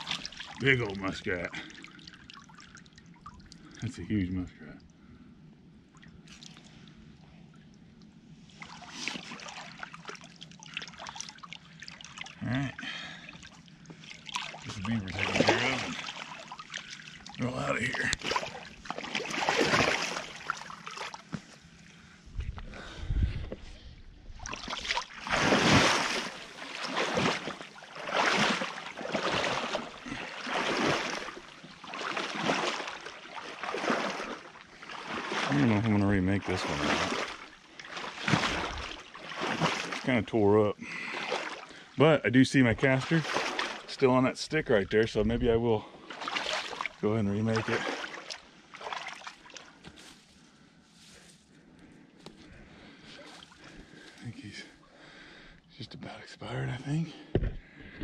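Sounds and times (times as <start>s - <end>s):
water sloshing and splashing: 0.0s - 4.0s, 5.8s - 22.0s, 23.5s - 51.5s, 52.4s - 55.6s
creek water trickling: 0.0s - 22.2s, 24.2s - 55.9s.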